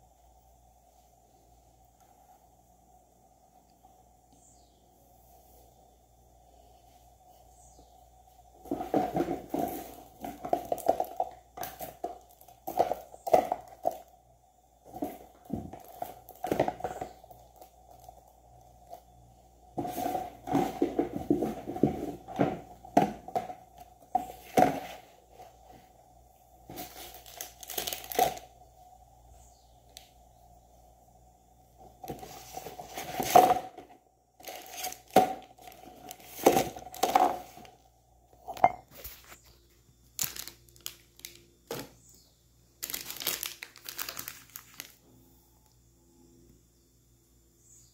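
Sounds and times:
plastic wrapping crinkling: 8.7s - 14.1s, 14.8s - 19.0s, 26.7s - 28.6s, 34.4s - 37.8s, 38.4s - 41.9s, 42.8s - 45.0s.

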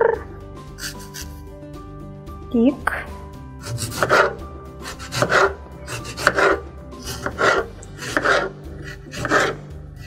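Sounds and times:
serrated knife sawing tomato: 0.7s - 1.5s, 3.6s - 10.0s.

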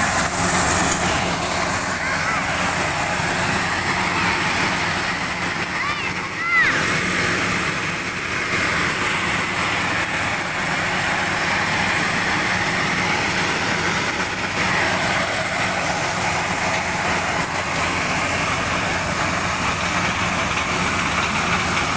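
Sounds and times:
corn kernels pouring onto heap: 0.0s - 21.9s
tractor and sheller machine droning: 0.0s - 21.9s.

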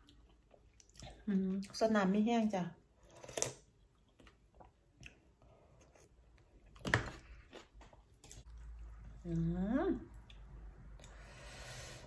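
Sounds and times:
soft chewing: 0.0s - 1.9s, 3.0s - 9.4s.

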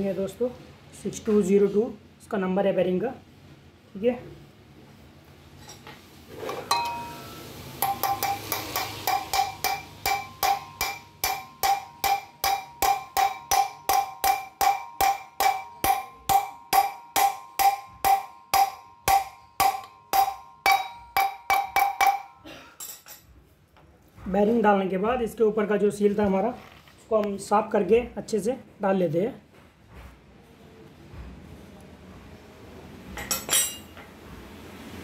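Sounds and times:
hammer blows on metal: 6.7s - 22.7s.

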